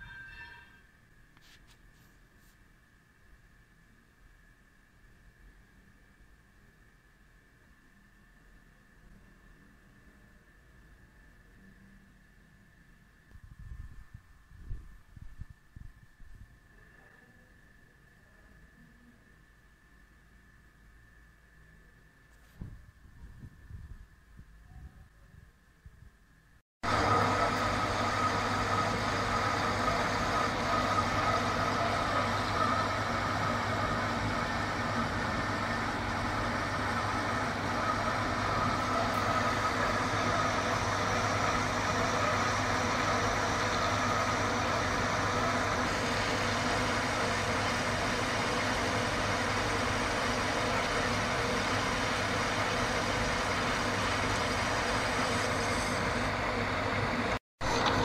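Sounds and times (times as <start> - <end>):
faint whine: 0.0 - 58.0
metal lathe humming: 26.9 - 58.0.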